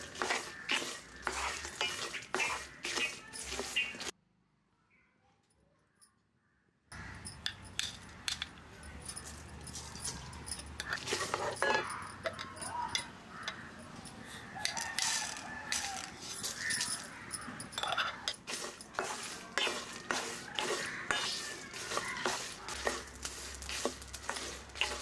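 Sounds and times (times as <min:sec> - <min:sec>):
seeds rattling into pan: 0:00.0 - 0:04.1, 0:07.2 - 0:25.0
wooden spatula scraping iron pan: 0:00.0 - 0:04.1, 0:09.3 - 0:25.0
rooster crowing: 0:14.3 - 0:17.6.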